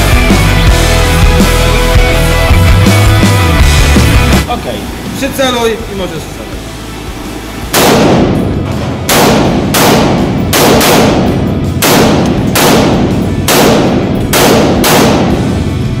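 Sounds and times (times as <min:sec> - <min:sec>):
rifle shots echoing indoors: 0:07.7 - 0:15.8.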